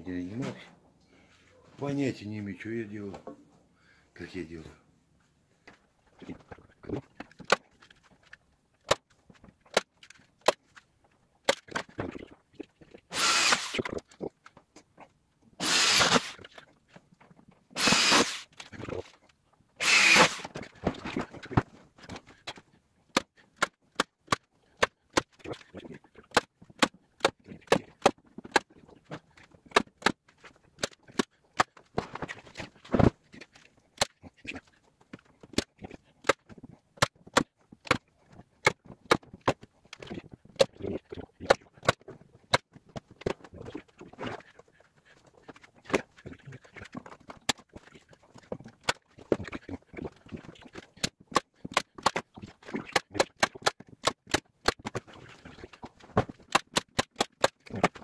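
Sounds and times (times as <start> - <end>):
electric drill running: 13.1 - 13.8, 15.6 - 16.4, 17.8 - 18.4, 19.8 - 20.5.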